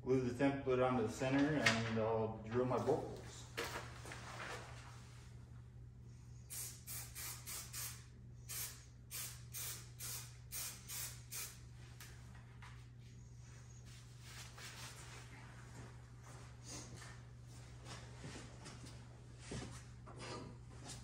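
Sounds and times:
aerosol can spraying: 6.5 - 11.6.

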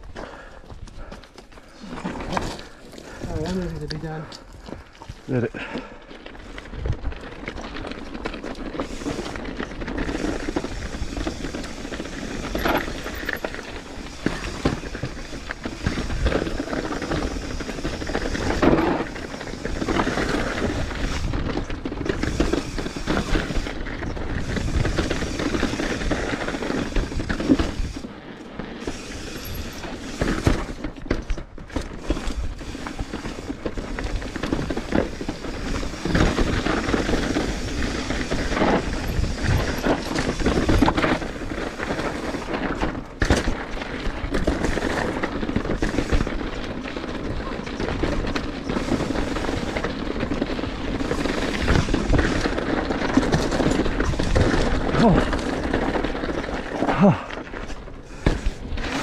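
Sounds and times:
bike knocking and rattling: 0.0 - 59.0
bike tyres rolling over gravel: 0.0 - 59.0.

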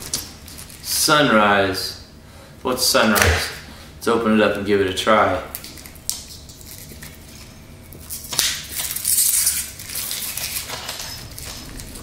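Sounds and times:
plastic wrapper crinkling and tearing: 0.0 - 0.9, 5.5 - 12.0.

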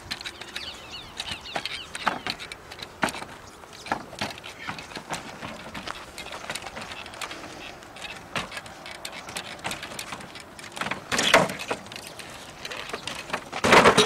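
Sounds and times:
crunching landing on pallets: 13.0 - 14.0
thud on wooden pallets: 13.3 - 14.0.

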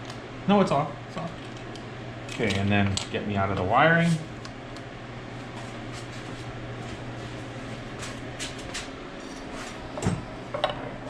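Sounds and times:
steady low hum: 0.0 - 11.0
metal parts clicking and clinking: 1.3 - 3.1.

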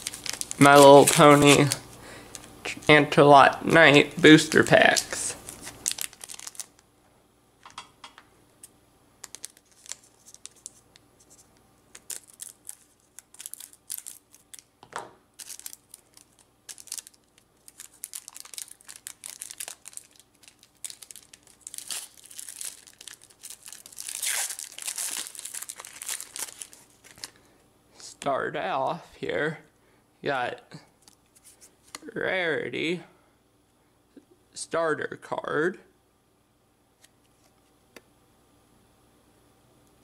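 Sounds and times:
wrapper tearing and crinkling: 0.0 - 2.5, 4.5 - 6.8, 9.2 - 14.7, 15.4 - 27.4.

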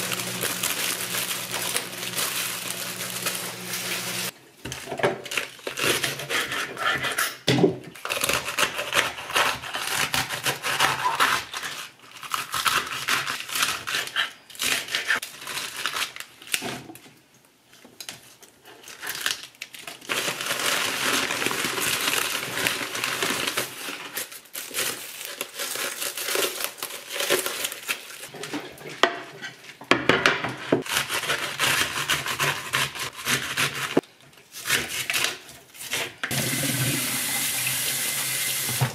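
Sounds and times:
leaves crunching and snapping: 0.0 - 4.3, 19.0 - 28.3
plastic bag crinkling: 0.0 - 5.9, 15.1 - 17.0, 17.7 - 28.9
knife cutting lettuce on board: 8.1 - 15.2, 30.6 - 36.2.

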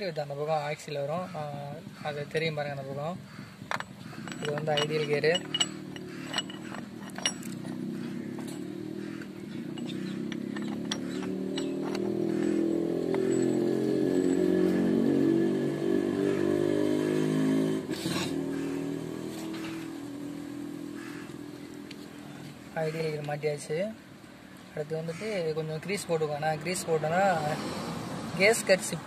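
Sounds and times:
vehicle engine running: 3.2 - 16.4, 18.5 - 20.0
sharp metal clicks: 3.7 - 14.8.

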